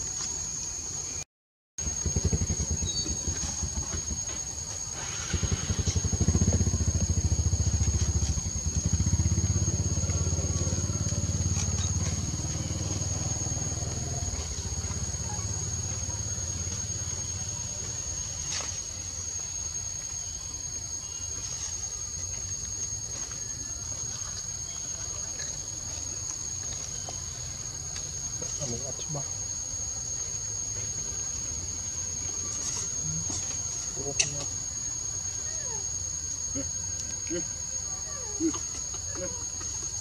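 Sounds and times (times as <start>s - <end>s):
high-pitched insect drone: 1.8s - 40.0s
vehicle engine: 5.0s - 19.3s.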